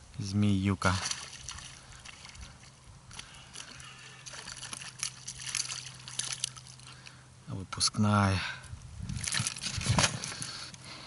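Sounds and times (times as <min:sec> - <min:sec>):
water sloshing against boat: 0:00.7 - 0:07.3
sharp splashes and knocks: 0:00.8 - 0:06.9, 0:09.2 - 0:10.4.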